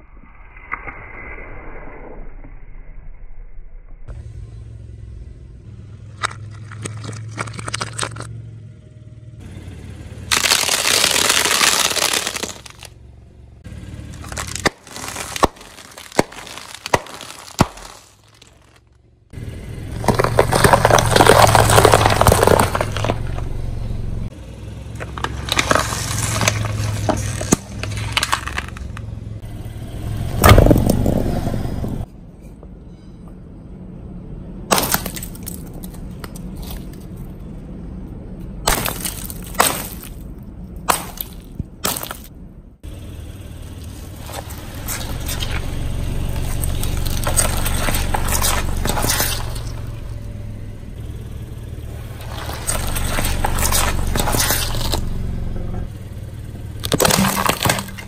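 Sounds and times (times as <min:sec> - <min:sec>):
tyre crushing snack bags: 0:06.2 - 0:08.3, 0:10.3 - 0:12.9, 0:14.1 - 0:18.8, 0:20.0 - 0:23.4, 0:25.0 - 0:29.1, 0:34.7 - 0:37.2, 0:38.7 - 0:42.3, 0:43.8 - 0:50.0, 0:52.1 - 0:55.1, 0:56.8 - 0:58.0.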